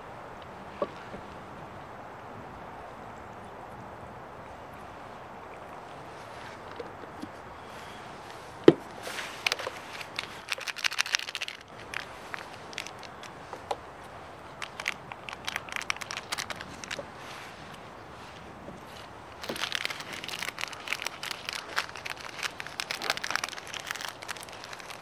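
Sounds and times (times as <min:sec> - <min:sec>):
packaging crinkling: 0:09.0 - 0:13.7, 0:14.5 - 0:17.2, 0:18.9 - 0:25.0.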